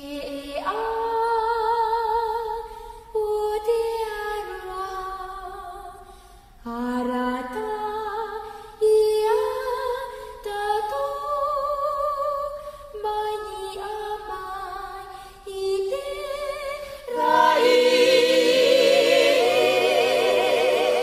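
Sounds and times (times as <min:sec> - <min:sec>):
group singing in harmony: 0:16.0 - 0:21.0.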